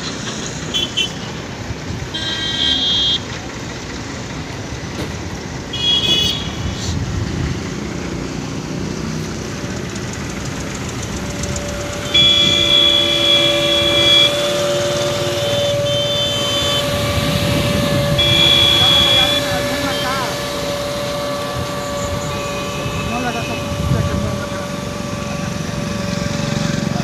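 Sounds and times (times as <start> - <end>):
traffic noise: 0.0 - 27.0
steady high and low tones: 9.3 - 27.0
short high horn toot: 11.2 - 26.8.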